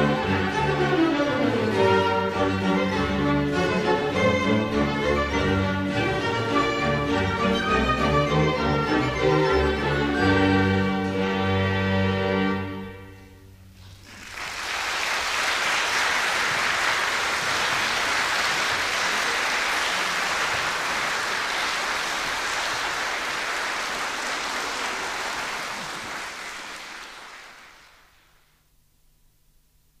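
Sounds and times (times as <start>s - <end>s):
audience applauding: 13.8s - 28.4s.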